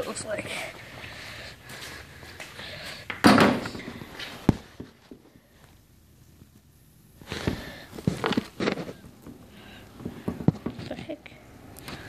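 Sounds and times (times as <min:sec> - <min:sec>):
scuffs and clicks: 0:07.2 - 0:09.1.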